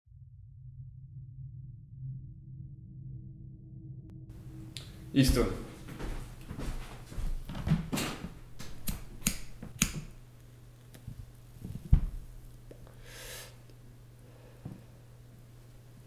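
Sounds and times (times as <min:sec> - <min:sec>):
steady low hum: 0:00.2 - 0:16.0
sharp clicks and taps: 0:08.6 - 0:10.2.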